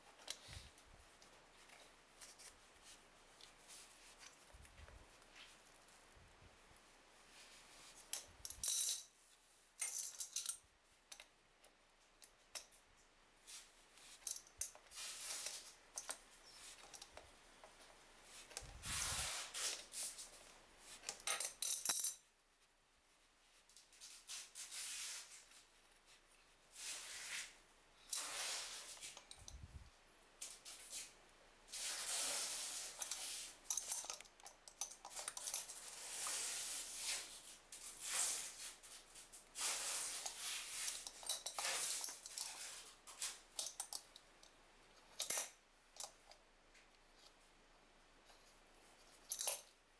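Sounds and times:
pliers clinking on fittings: 21.1 - 22.2.

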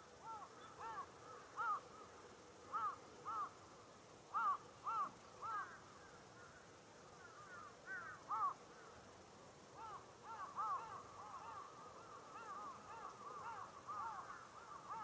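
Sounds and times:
crows cawing: 0.2 - 2.1, 2.7 - 3.5, 4.3 - 6.6, 7.2 - 8.9, 9.8 - 15.0.

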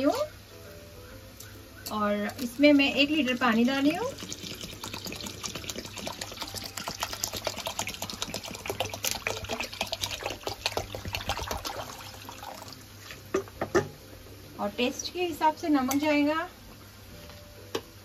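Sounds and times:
water pouring into pot of rice: 3.3 - 12.9.

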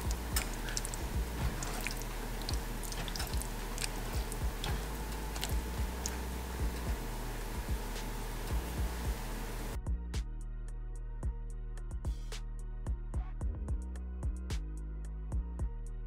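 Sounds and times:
spatula stirring thick sauce: 0.0 - 8.4
sauce popping: 0.0 - 9.7.

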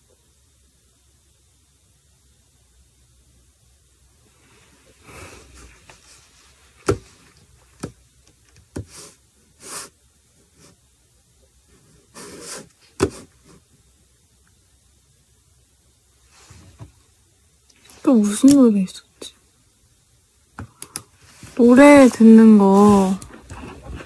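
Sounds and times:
rustling and rubbing handling noise: 4.2 - 13.9, 16.2 - 17.2, 20.6 - 24.0.

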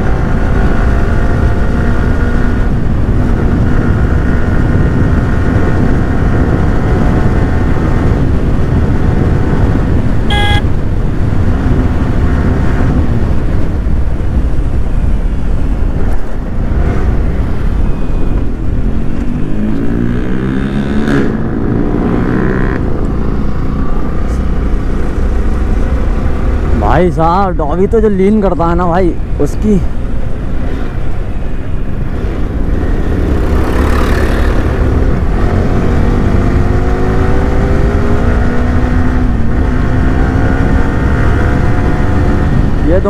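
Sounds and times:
motorcycle engine revving: 0.0 - 10.8, 18.8 - 26.9, 32.0 - 43.0
wind rumble: 0.0 - 43.0
horn beep: 10.3 - 10.8.

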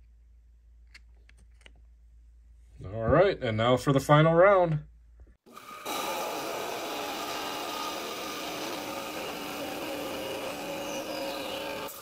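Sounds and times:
saw cutting rock: 5.5 - 12.0.

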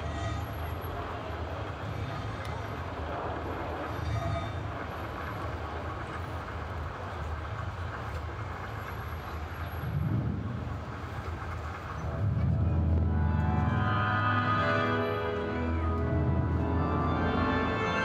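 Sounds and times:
outdoor crowd noise: 0.0 - 18.0
low rumble: 9.8 - 17.1.

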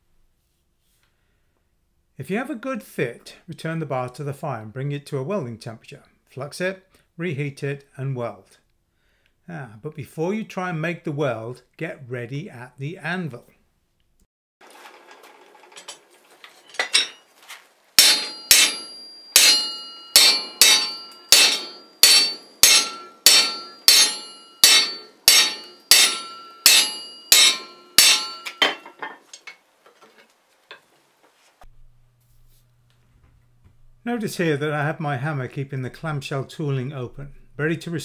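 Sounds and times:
hammer striking steel: 18.0 - 29.1.

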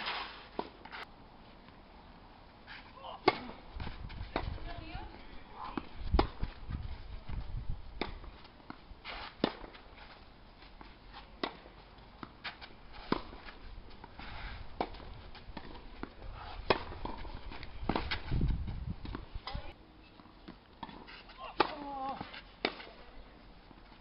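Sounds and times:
tennis ball off racket: 0.0 - 1.1, 2.7 - 7.4, 8.0 - 19.6, 20.2 - 24.0
tennis ball bouncing: 3.2 - 6.6, 8.0 - 9.8, 10.8 - 14.1, 14.8 - 18.3, 19.0 - 23.8.

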